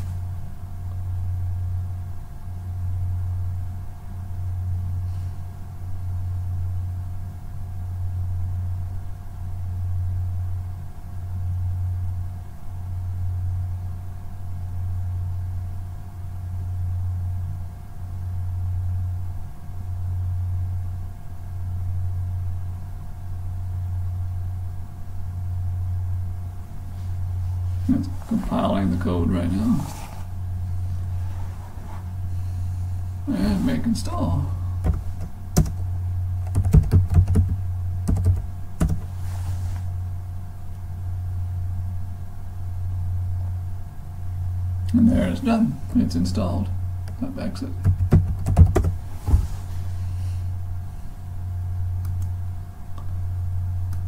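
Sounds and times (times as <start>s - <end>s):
faint whine tones: 0.0s - 36.7s
low machine hum: 0.0s - 54.0s.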